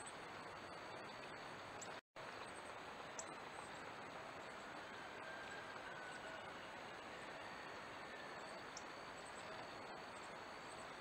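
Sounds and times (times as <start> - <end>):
faint outdoor background noise: 0.0 - 11.0.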